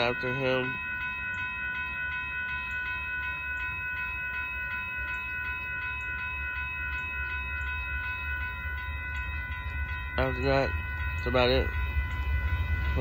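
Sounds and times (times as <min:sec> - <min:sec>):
railroad crossing bell ringing: 0:00.0 - 0:13.0
low steady rumble: 0:04.4 - 0:13.0.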